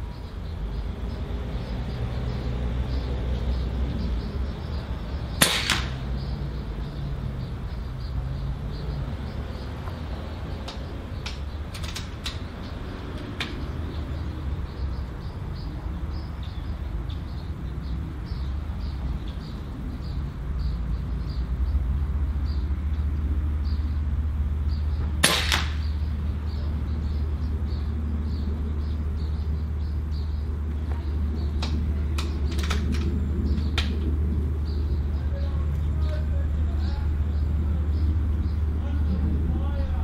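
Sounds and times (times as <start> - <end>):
air rifle shot: 5.4 - 6.2, 25.2 - 26.0
low steady rumble: 19.1 - 40.0.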